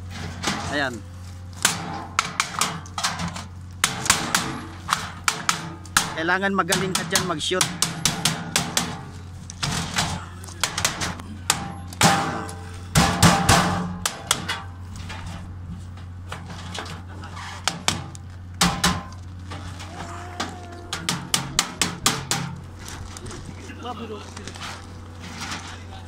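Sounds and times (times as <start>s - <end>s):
hammer on sheet metal: 5.3s - 9.1s, 10.6s - 14.7s.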